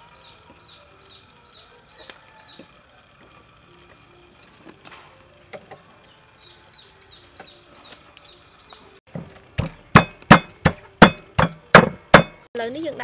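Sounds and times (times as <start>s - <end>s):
pestle pounding in wooden mortar: 9.1s - 12.5s.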